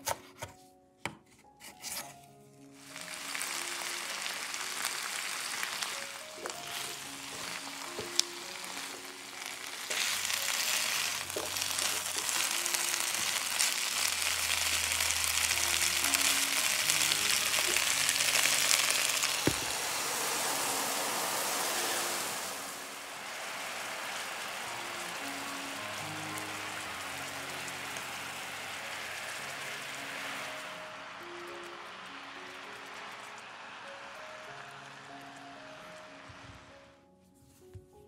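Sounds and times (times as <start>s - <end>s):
soft background music: 0.0s - 38.0s
food sizzling in a frying pan: 2.8s - 36.7s.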